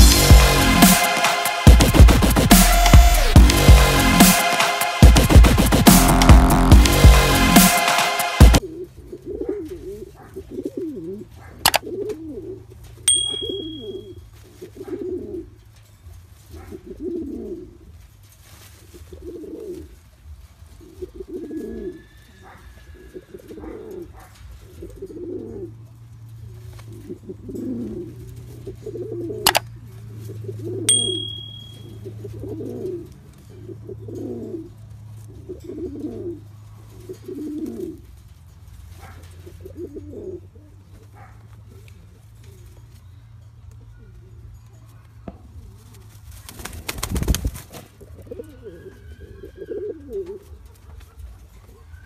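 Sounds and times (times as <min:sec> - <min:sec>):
pigeon cooing: 0:08.5 - 0:15.8, 0:16.4 - 0:18.1, 0:18.8 - 0:43.0, 0:45.0 - 0:52.0
short high beep: 0:13.1 - 0:14.1, 0:30.9 - 0:31.9.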